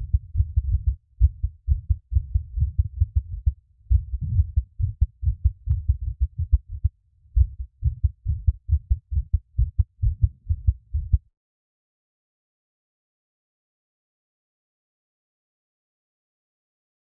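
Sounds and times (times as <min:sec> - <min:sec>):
human heartbeat thumps: 0:00.0 - 0:11.2.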